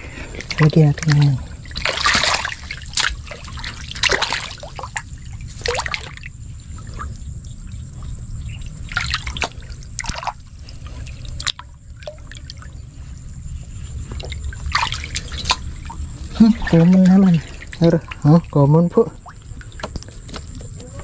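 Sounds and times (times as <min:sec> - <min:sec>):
steady low rumble: 0:00.0 - 0:21.0
water trickling and dripping: 0:00.0 - 0:21.0
hands splashing in muddy water: 0:00.4 - 0:06.3, 0:14.1 - 0:15.7.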